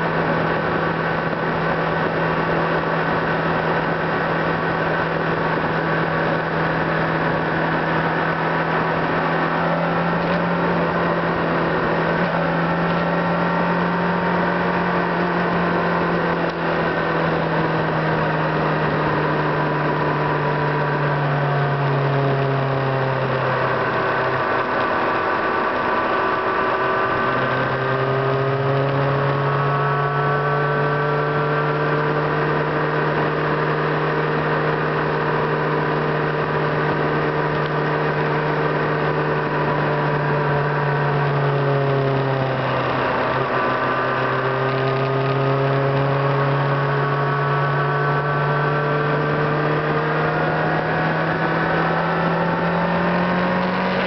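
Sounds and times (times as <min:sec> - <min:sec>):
car engine: 0:00.0 - 0:54.0
road noise inside car: 0:00.0 - 0:54.0.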